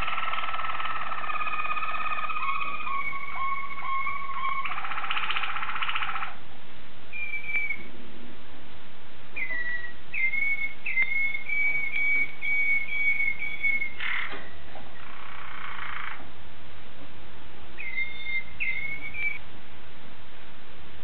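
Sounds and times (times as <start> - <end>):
canary singing: 0.0 - 6.4, 7.1 - 7.9, 9.4 - 16.2, 17.8 - 19.4.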